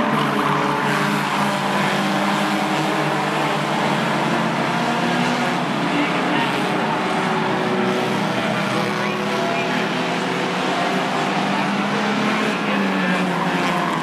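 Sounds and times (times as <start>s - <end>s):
race car engines droning: 0.0s - 14.0s.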